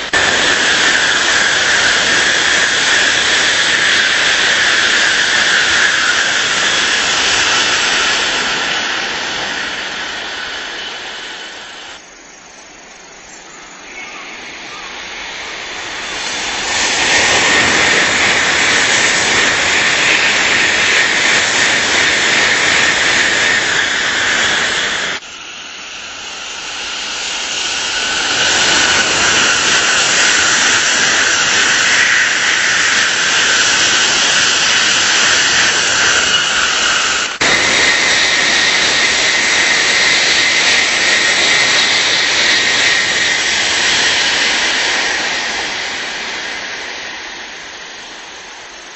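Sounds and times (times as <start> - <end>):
bullet train passing: 0.0 - 48.9
high steady whine: 0.0 - 48.9.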